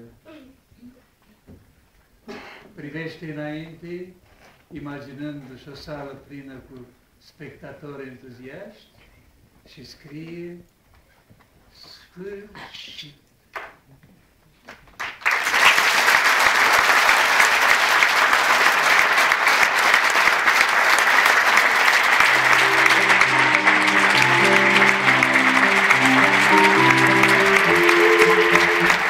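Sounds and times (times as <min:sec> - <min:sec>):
audience applauding: 0:15.0 - 0:29.0.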